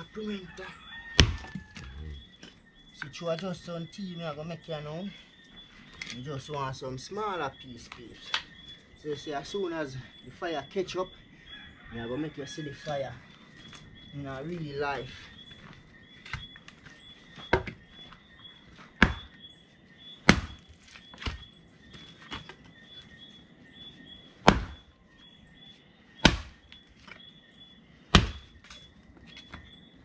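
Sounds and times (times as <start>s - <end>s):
axe chopping firewood: 1.1s - 1.9s, 17.4s - 17.8s, 18.9s - 19.4s, 20.2s - 22.6s, 24.4s - 24.9s, 26.2s - 27.2s, 28.1s - 29.7s.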